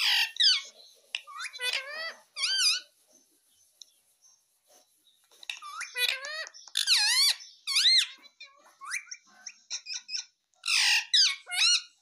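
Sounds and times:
parakeet chirping and whistling: 0.0s - 2.9s, 5.6s - 12.0s.

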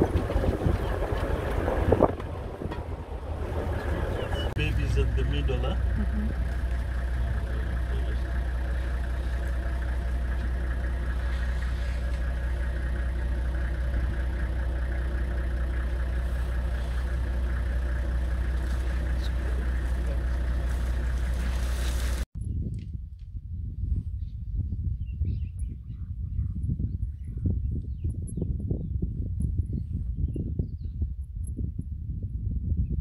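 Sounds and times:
vehicle engine idling: 0.0s - 22.3s.

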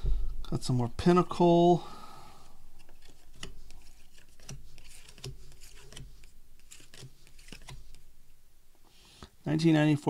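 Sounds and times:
cards sliding: 2.7s - 8.4s.

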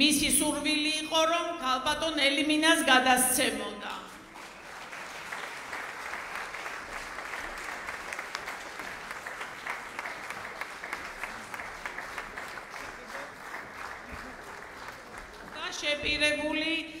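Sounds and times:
crowd applauding: 4.1s - 16.1s.

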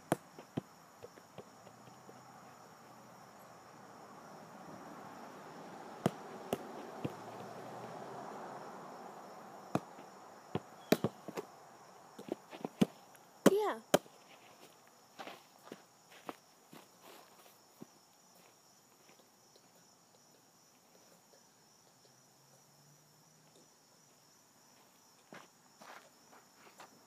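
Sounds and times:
foot kicking soccer ball: 0.0s - 2.6s, 6.0s - 7.6s, 9.7s - 11.5s, 12.2s - 14.2s
insects droning: 0.0s - 27.0s.

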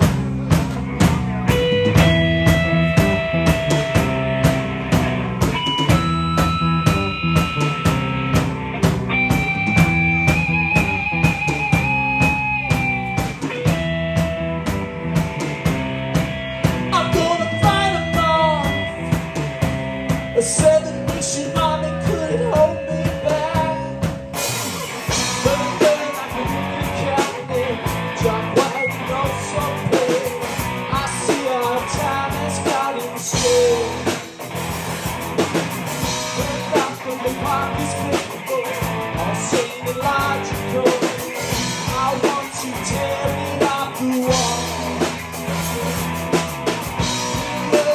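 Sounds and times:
rock band playing: 0.0s - 47.9s
man singing: 16.9s - 19.4s, 20.3s - 24.3s, 25.1s - 34.4s, 36.0s - 45.2s, 47.1s - 47.9s.

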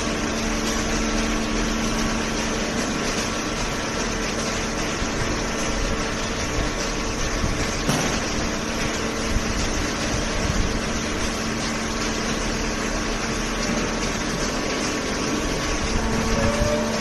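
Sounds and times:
baler and conveyor machine drone: 0.0s - 17.0s.

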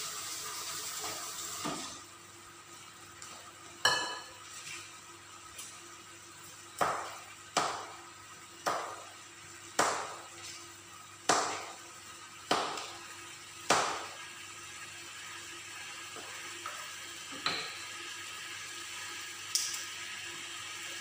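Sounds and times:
chicken cooking in bubbling liquid: 0.0s - 21.0s
sharp pops with sizzle: 6.4s - 10.6s, 11.2s - 14.3s, 19.4s - 20.0s.

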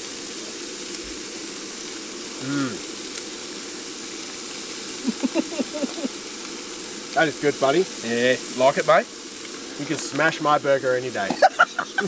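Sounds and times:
frying pan sizzling: 0.0s - 12.0s
person humming mm: 2.3s - 3.0s, 5.0s - 6.1s
man laughing: 5.0s - 6.1s, 11.2s - 12.0s.

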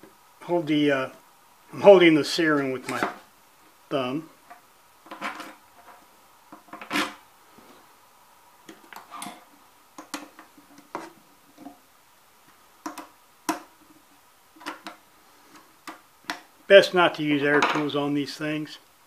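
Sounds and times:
small clicks of metal and plastic parts: 12.8s - 13.6s.

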